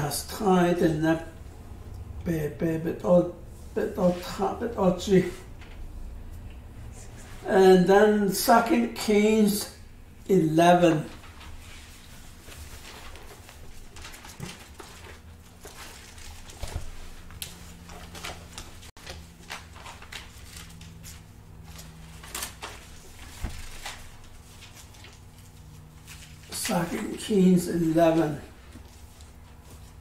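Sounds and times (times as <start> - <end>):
faint steady hum: 0.0 - 30.0
pages rustling: 11.1 - 30.0.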